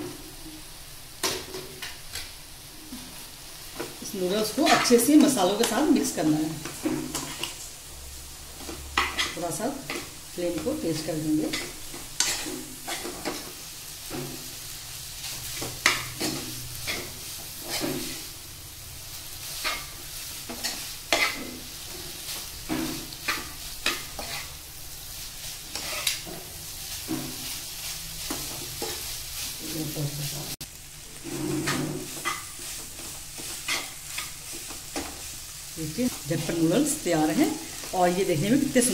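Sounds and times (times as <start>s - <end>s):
noodles sizzling in a pan: 0.0s - 38.9s
steel spoon scraping a pan: 4.4s - 7.6s, 8.6s - 14.6s, 15.2s - 18.3s, 19.5s - 35.4s.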